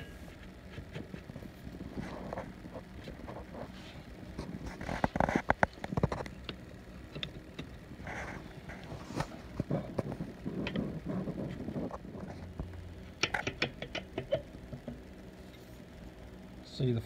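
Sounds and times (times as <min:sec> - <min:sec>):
metallic clicks and knocks: 0:13.2 - 0:15.0.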